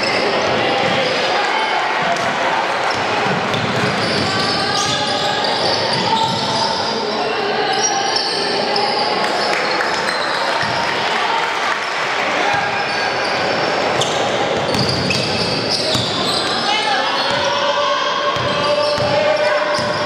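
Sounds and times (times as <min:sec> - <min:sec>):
mix of voices: 0:00.0 - 0:20.0
basketball bouncing on wooden court: 0:14.0 - 0:16.2, 0:18.4 - 0:20.0.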